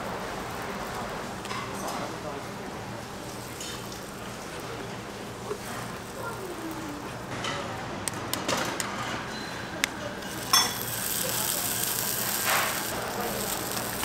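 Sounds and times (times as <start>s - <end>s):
batter sizzling: 3.0s - 7.3s, 10.1s - 14.0s.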